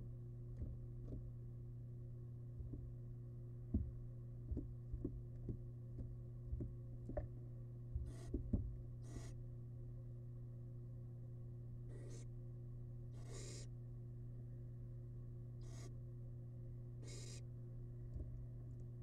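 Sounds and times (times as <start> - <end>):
steady electrical hum: 0.0 - 19.0
soft knocks and thumps: 0.6 - 1.3, 2.6 - 2.9, 3.7 - 7.4, 8.0 - 8.8
owl chick hissing: 11.9 - 12.3, 13.2 - 13.7, 15.6 - 15.9, 17.0 - 17.4.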